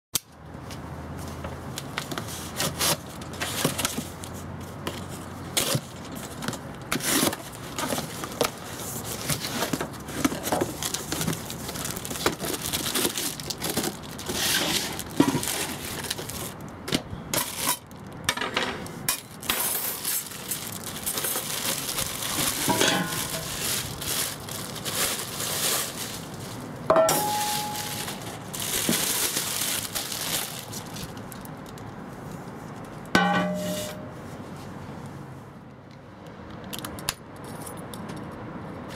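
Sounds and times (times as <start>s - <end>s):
cardboard and paper rustling: 1.2s - 17.8s, 19.3s - 31.8s
plastic bag crinkling: 5.6s - 16.7s, 19.2s - 31.9s
metal part clanking and ringing: 26.9s - 27.8s.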